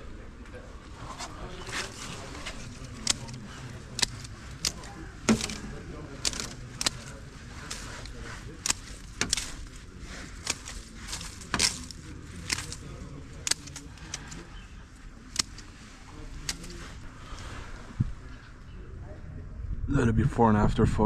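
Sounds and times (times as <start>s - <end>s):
low outdoor rumble: 0.0s - 21.0s
hand tool snapping twigs: 1.0s - 17.4s.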